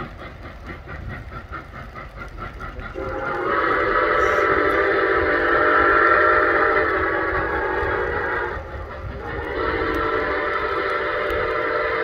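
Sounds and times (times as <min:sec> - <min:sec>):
steam locomotive chuffing: 0:00.0 - 0:12.0
steam whistle blast: 0:03.0 - 0:12.0.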